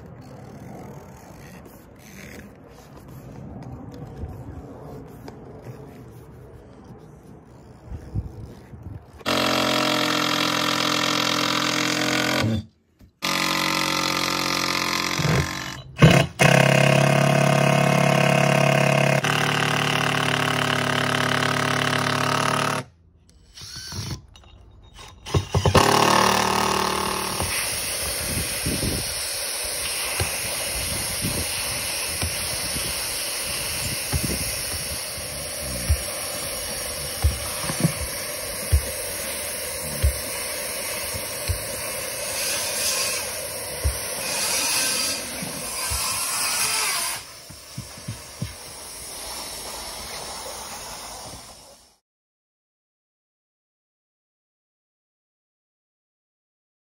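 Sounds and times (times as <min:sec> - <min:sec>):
cordless drill driving screws: 0:09.2 - 0:24.3, 0:25.0 - 0:49.1
hot-air welder hissing: 0:27.2 - 0:51.9.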